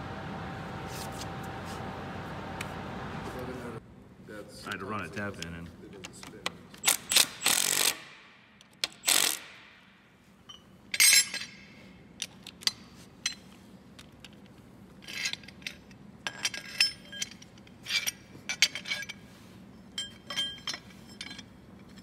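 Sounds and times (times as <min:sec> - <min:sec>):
metal tools clinking on concrete: 0:10.4 - 0:13.6, 0:15.0 - 0:22.0.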